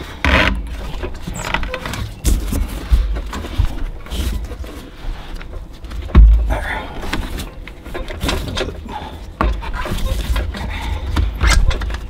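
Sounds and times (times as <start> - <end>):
knocks and clunks: 0.1 - 4.8, 5.4 - 12.0.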